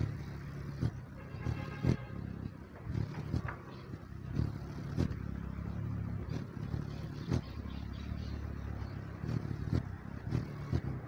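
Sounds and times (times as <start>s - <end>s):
hummingbird wings humming: 0.0s - 11.0s.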